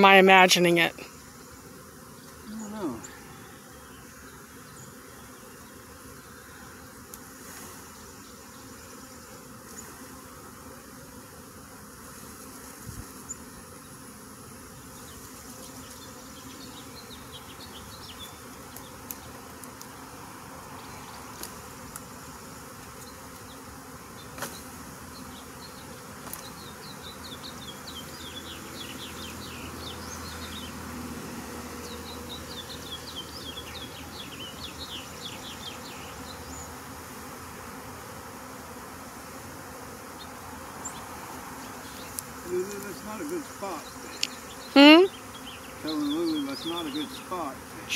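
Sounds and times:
honeybees buzzing: 0:00.0 - 0:47.9.

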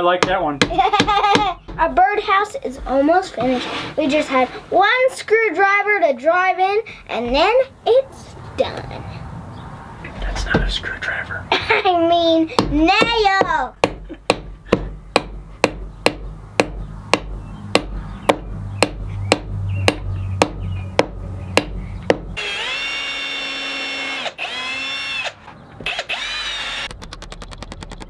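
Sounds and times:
rapid ticks: 0:26.9 - 0:28.0.

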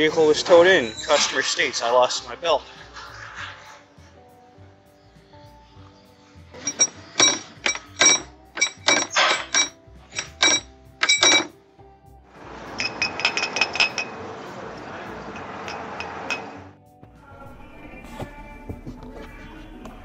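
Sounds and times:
gritty rasp of water pump: 0:00.4 - 0:04.2
light metallic clinks: 0:06.6 - 0:11.5, 0:12.8 - 0:14.2
metallic clanks with ringing: 0:06.6 - 0:11.6, 0:12.8 - 0:14.2, 0:15.3 - 0:16.6.

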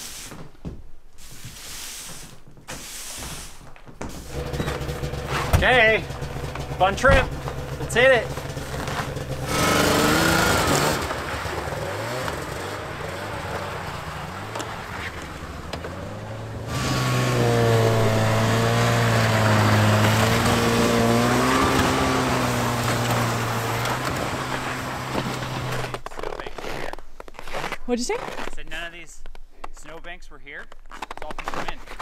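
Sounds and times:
snowmobile engine revving: 0:04.2 - 0:28.7.

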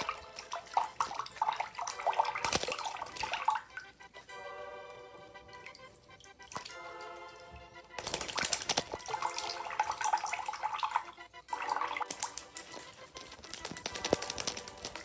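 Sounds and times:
bird wings splashing water: 0:00.0 - 0:03.7, 0:07.9 - 0:15.0
trickling tap: 0:11.6 - 0:15.0.

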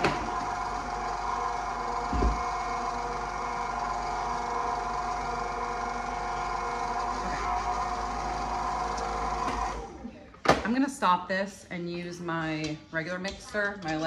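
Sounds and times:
electric mixer motor running: 0:00.0 - 0:10.0.

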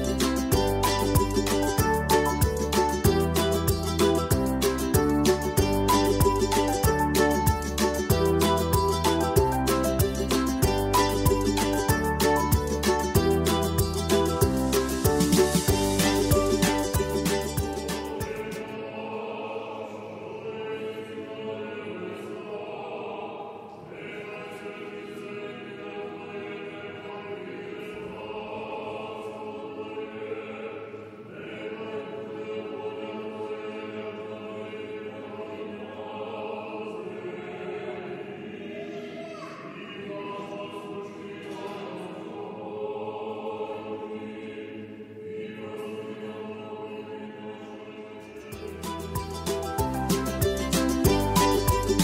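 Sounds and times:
choir singing slow chant: 0:13.3 - 0:50.0.

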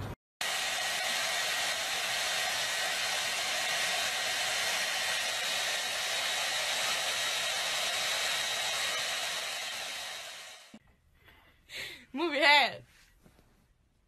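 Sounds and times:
hair dryer blowing: 0:00.4 - 0:10.8.

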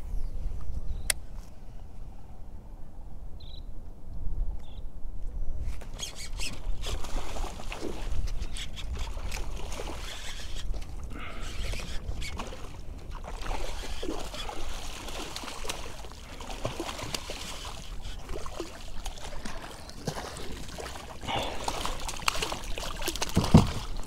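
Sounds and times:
water trickling and sloshing: 0:05.9 - 0:24.0
fish thrashing and splashing: 0:06.0 - 0:24.0.

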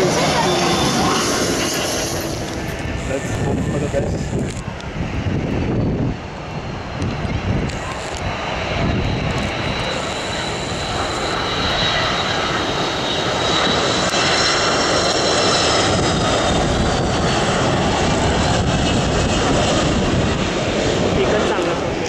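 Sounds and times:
jet engines rumbling with fan whine: 0:00.0 - 0:22.0.

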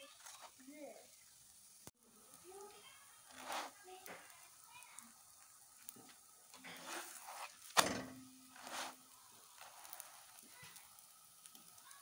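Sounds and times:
spatula scraping a pan: 0:03.1 - 0:04.4, 0:06.5 - 0:10.7
sharp knock on a pan: 0:07.8 - 0:08.4.

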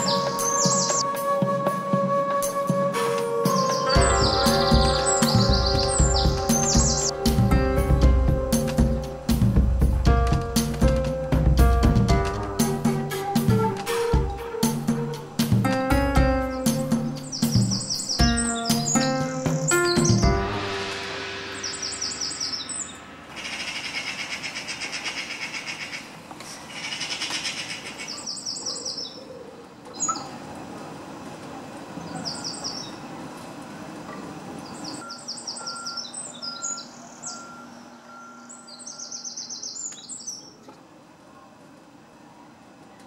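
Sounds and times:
wren trilling song: 0:00.0 - 0:01.6, 0:02.4 - 0:09.6, 0:12.6 - 0:26.1, 0:34.6 - 0:40.6.

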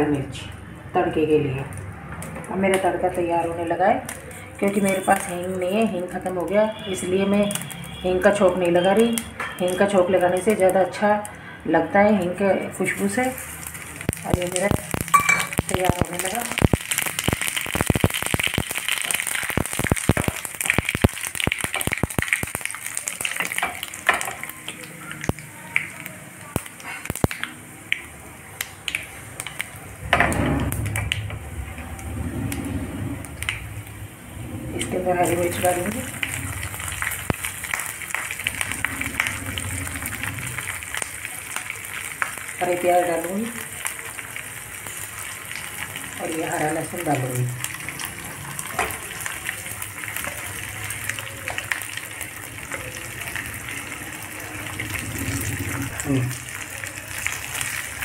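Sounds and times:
spices crackling in hot oil: 0:00.0 - 0:58.0
low rushing noise: 0:29.9 - 0:41.2.

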